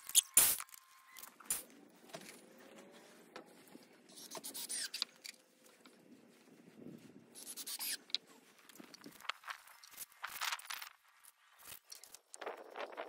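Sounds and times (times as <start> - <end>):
rough scrapes: 4.1 - 5.0, 7.3 - 8.5.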